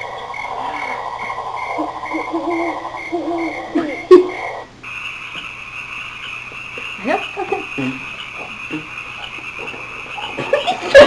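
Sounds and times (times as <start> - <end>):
pulsing recorded sound effect: 0.0 - 10.9
recorded frog chorus: 0.0 - 11.0
girls imitating with vocal noises: 1.8 - 4.5.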